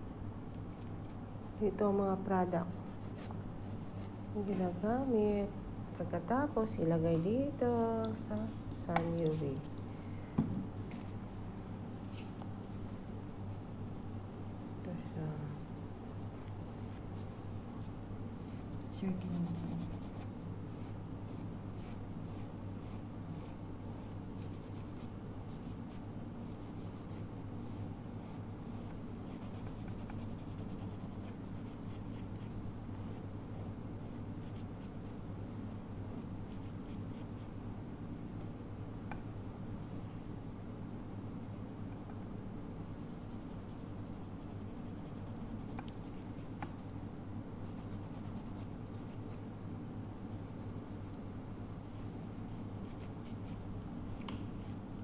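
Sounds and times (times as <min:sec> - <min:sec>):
steady low hum: 0:00.0 - 0:55.0
nail file rasping on fingernail: 0:14.6 - 0:37.5, 0:41.4 - 0:42.2, 0:42.9 - 0:46.8, 0:47.6 - 0:49.4, 0:52.2 - 0:54.8.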